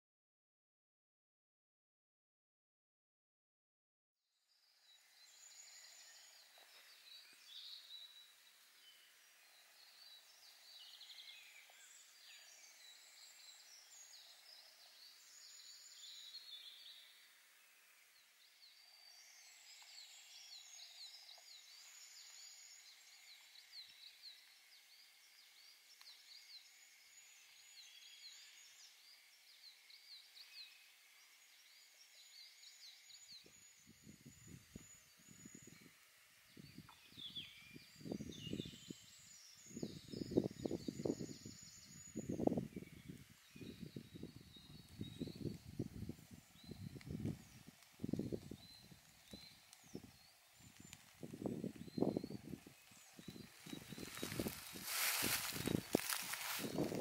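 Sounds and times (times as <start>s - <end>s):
songbirds chirping and trilling: 4.5s - 57.0s.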